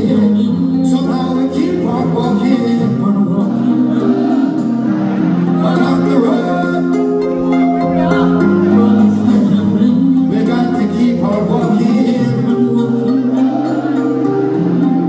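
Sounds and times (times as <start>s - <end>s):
reggae band playing: 0.0s - 15.0s
person singing lead: 5.5s - 15.0s.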